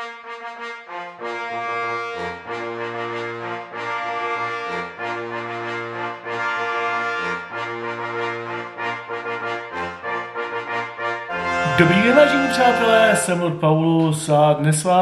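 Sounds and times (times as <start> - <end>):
held brass chords: 0.0 - 13.6
bass line: 5.2 - 14.5.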